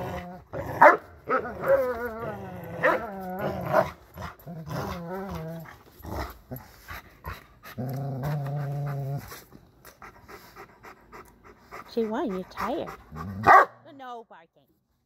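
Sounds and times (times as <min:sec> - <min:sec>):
dogs growling in play: 0:00.0 - 0:13.5.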